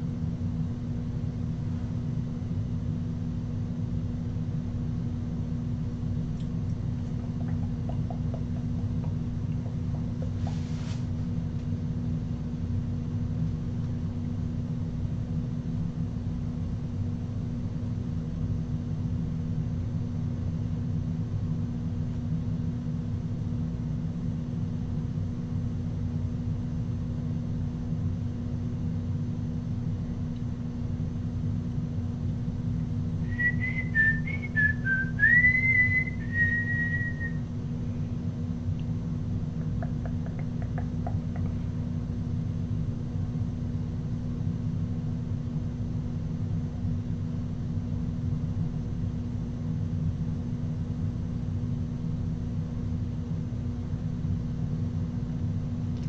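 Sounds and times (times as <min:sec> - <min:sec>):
steady low hum: 0:00.0 - 0:56.0
person whistling tune: 0:33.3 - 0:37.4.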